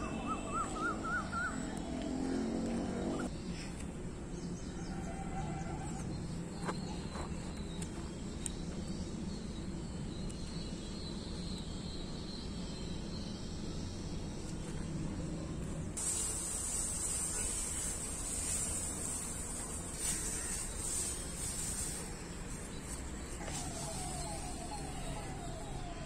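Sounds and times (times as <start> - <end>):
steady hiss: 15.7 - 26.0
faint insect buzz: 16.0 - 25.9
bird chirps: 16.2 - 26.0.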